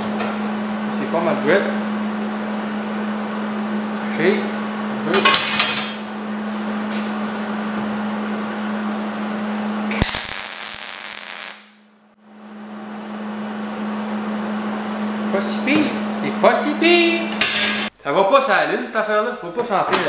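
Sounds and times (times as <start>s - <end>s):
welder crackling: 9.9s - 11.8s.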